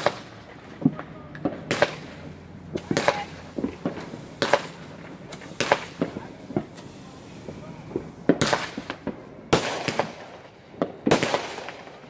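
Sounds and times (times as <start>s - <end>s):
fireworks bangs: 0.0s - 12.0s
fireworks pops and crackles: 0.0s - 12.0s.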